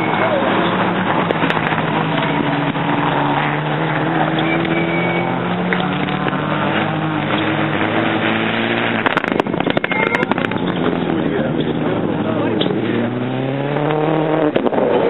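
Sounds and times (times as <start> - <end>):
rally car engine droning: 0.0 - 15.0
sharp cracks of passing car: 13.7 - 15.0.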